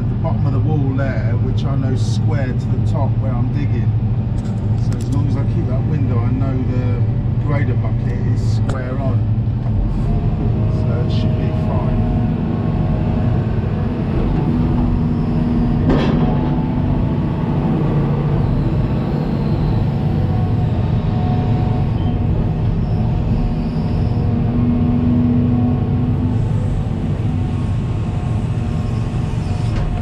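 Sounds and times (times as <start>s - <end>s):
excavator engine and hydraulics: 0.0s - 30.0s.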